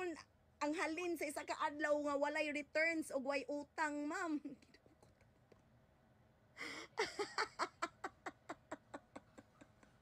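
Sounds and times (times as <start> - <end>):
woman laughing: 6.6 - 10.0.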